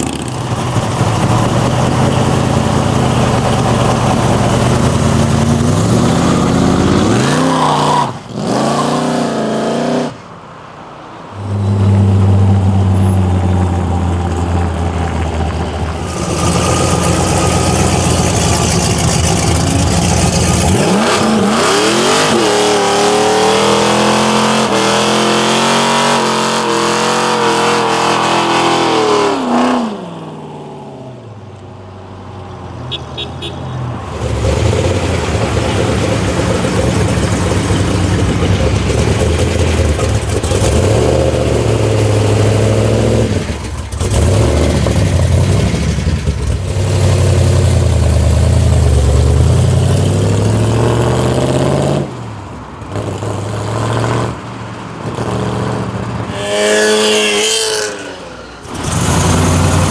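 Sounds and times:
car engine revving loudly: 1.5s - 10.2s, 16.1s - 30.1s, 55.2s - 59.9s.

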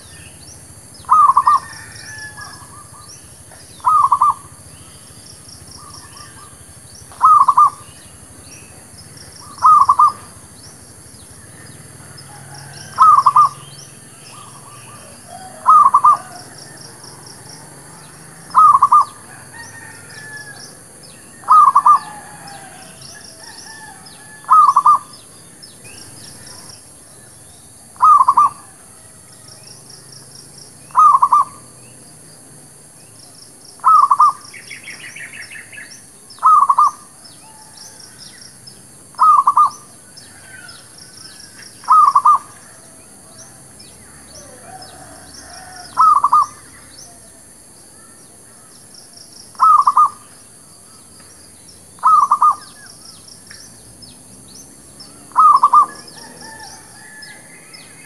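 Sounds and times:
dove cooing staccato notes: 1.0s - 3.0s, 3.8s - 4.5s, 5.8s - 7.8s, 9.4s - 10.4s, 12.4s - 13.7s, 14.3s - 17.2s, 18.4s - 19.2s, 21.4s - 22.7s, 24.4s - 25.1s, 28.0s - 28.7s, 30.9s - 31.6s, 33.8s - 34.4s, 36.4s - 37.1s, 39.2s - 39.8s, 41.8s - 42.6s, 45.9s - 46.6s, 49.5s - 50.2s, 52.0s - 52.7s, 55.3s - 56.6s.

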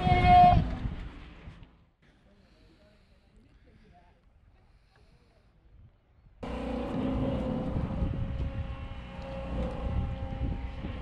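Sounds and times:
boat engine rumbling: 6.4s - 11.0s.

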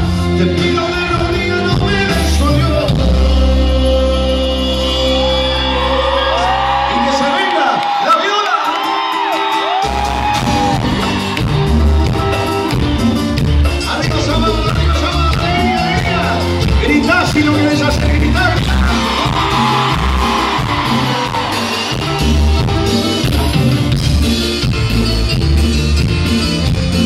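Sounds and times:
live band music: 0.0s - 27.0s
electric guitar: 8.7s - 27.0s
heavy pulsing bass beat: 10.4s - 27.0s.

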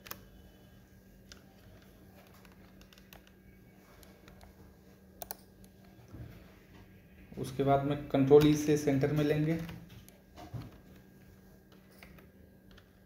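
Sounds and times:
steady low hum: 0.0s - 13.0s
computer clicks: 5.2s - 5.9s.

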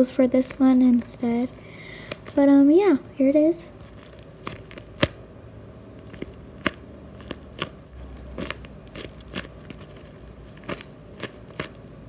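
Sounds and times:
plastic bags crinkling: 3.8s - 5.1s, 6.0s - 11.9s.

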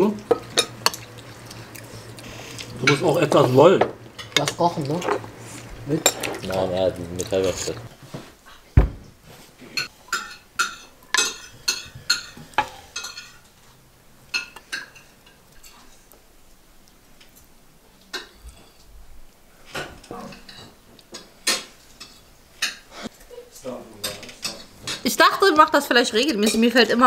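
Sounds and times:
metal utensils clinking on dishes: 2.8s - 5.3s, 5.9s - 7.9s, 9.8s - 13.6s, 19.7s - 22.9s, 23.5s - 25.2s, 26.2s - 27.0s.

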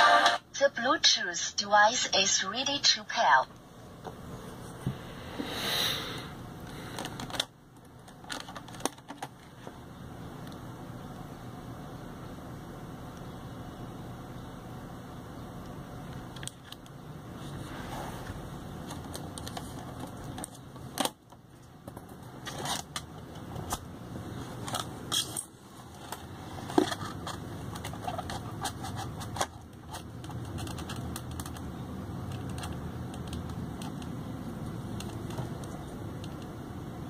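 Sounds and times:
steady low hum: 0.0s - 37.0s
plastic and metal parts clicking: 32.3s - 34.1s.

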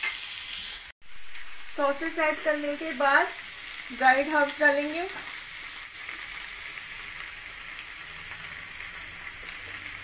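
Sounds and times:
vegetables sizzling in oil: 0.0s - 10.0s.

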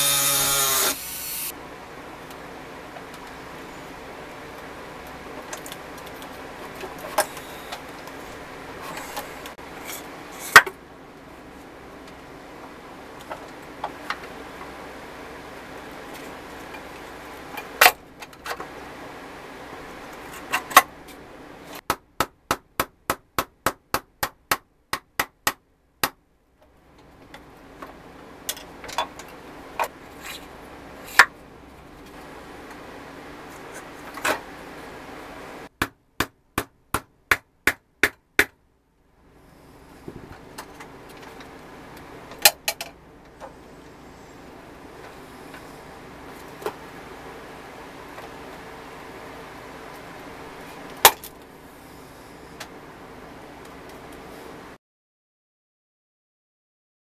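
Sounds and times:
low workshop hum: 0.0s - 54.8s.

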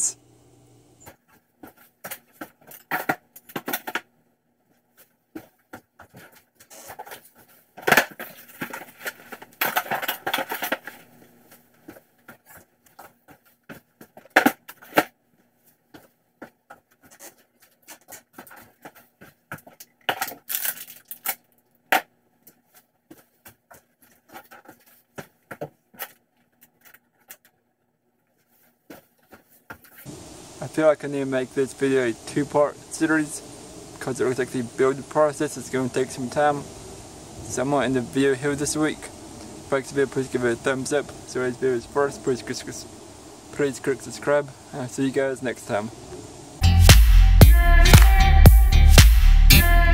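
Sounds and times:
faint steady hum: 0.0s - 1.2s, 30.1s - 46.6s
packaging rustling: 16.9s - 21.6s.

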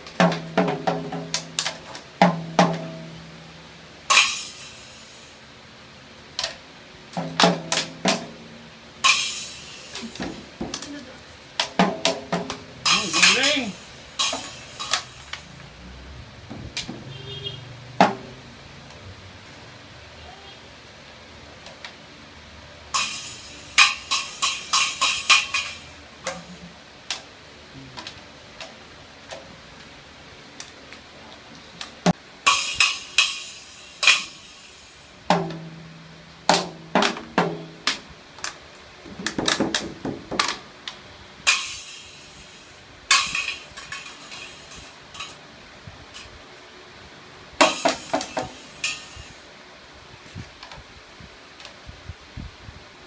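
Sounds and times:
toy drums struck with sticks: 0.0s - 3.2s, 4.1s - 5.2s, 7.1s - 8.4s, 9.0s - 10.9s, 11.6s - 15.6s, 18.0s - 18.4s, 22.9s - 26.6s, 32.1s - 40.6s, 41.4s - 45.4s, 47.6s - 49.4s.

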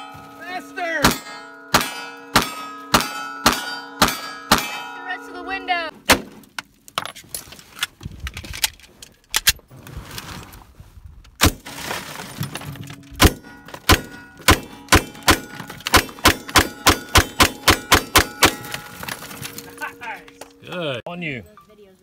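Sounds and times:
pistol shots: 1.0s - 4.9s, 13.2s - 18.8s.

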